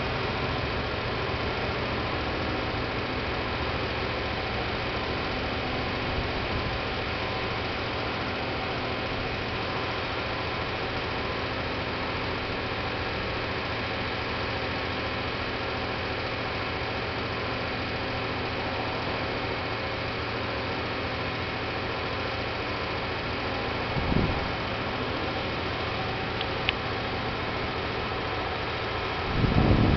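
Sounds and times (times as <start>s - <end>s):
diesel truck engine running: 0.0s - 29.9s.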